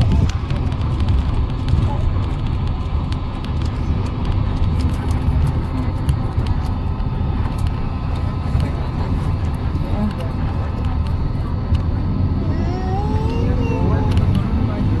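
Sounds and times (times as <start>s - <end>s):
low engine rumble: 0.0s - 15.0s.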